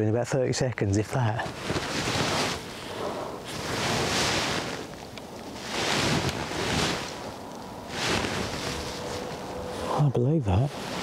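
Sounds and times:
wind noise on microphone: 1.5s - 9.9s.

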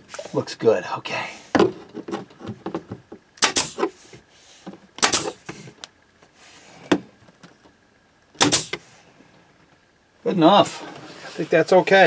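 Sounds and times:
pneumatic staple gun firing: 3.4s - 3.9s, 5.0s - 5.6s, 8.4s - 8.8s.

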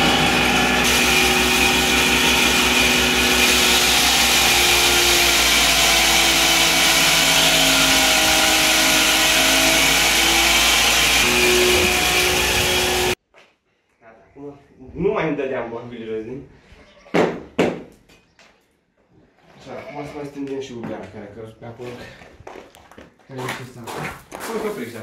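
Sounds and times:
electric grain mill grinding: 0.0s - 13.2s.

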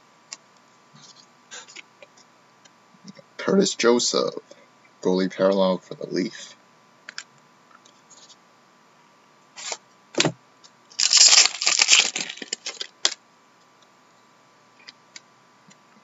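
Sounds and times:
card pack wrapper tearing and crinkling: 11.0s - 13.2s.

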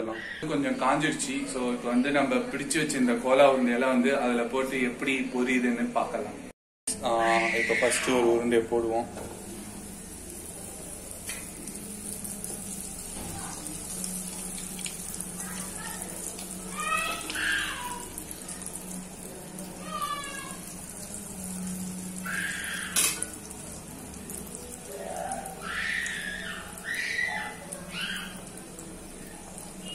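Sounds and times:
food sizzling in hot oil: 9.1s - 29.9s
high-pitched calls: 25.1s - 28.5s.

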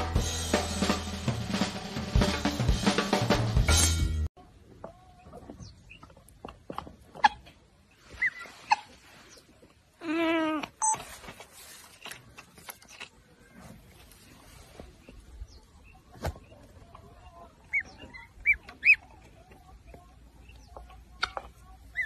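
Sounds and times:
gosling peeping: 17.0s - 22.0s.

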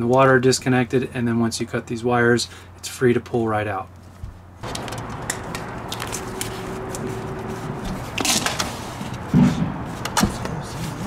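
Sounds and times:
metal water heater scraping: 4.6s - 10.0s.

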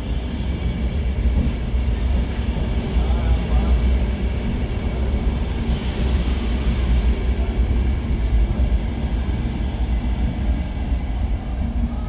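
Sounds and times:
electric train rumbling: 0.0s - 12.0s
train hiss: 5.2s - 8.2s.

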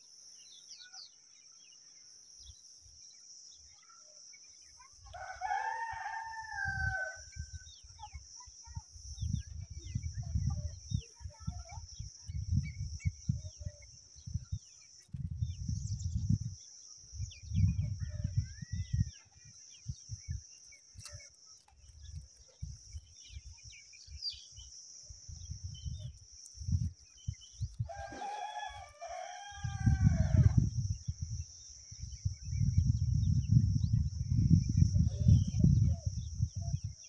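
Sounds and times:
wind rumble on microphone: 5.0s - 37.0s
rooster crowing: 5.2s - 7.4s, 27.8s - 30.6s.

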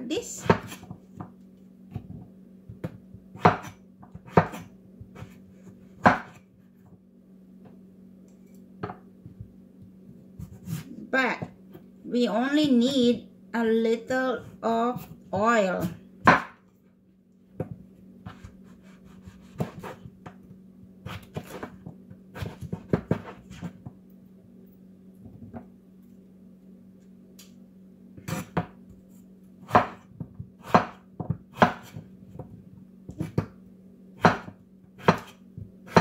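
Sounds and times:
cleaver chopping on wooden board: 3.4s - 4.6s, 6.0s - 6.4s, 16.2s - 16.6s, 29.7s - 30.0s, 30.6s - 32.0s, 34.2s - 36.0s.

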